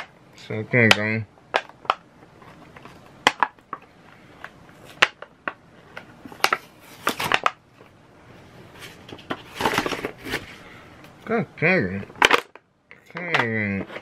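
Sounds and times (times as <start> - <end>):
plastic items clicking and tapping: 0.8 - 7.9, 12.0 - 14.0
packaging rustling: 1.6 - 8.0, 8.6 - 10.7.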